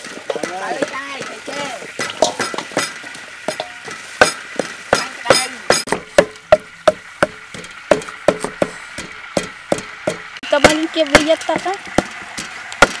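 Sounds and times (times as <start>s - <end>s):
pestle pounding in mortar: 0.3s - 13.0s
cleaver chopping on wooden board: 4.2s - 10.3s.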